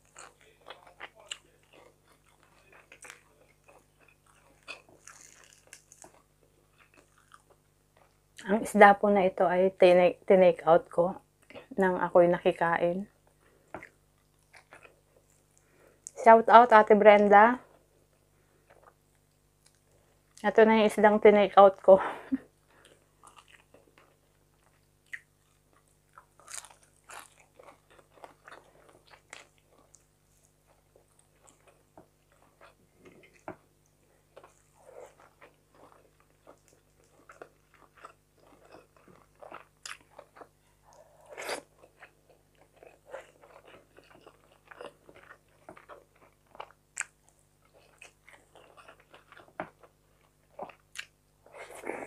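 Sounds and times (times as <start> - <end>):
person chewing crunchy food: 0.0 - 8.2, 13.6 - 16.2, 22.6 - 52.0.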